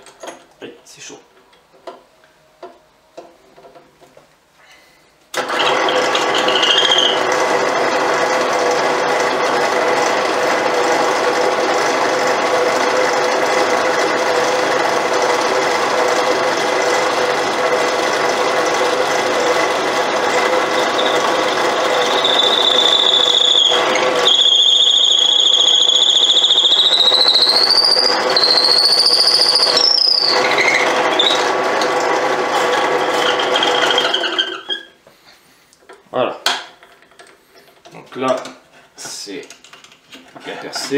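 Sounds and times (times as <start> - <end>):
drill press boring into wood: 5.3 - 34.9
high-pitched squeal: 5.4 - 7.3, 20.0 - 31.7, 32.7 - 35.0.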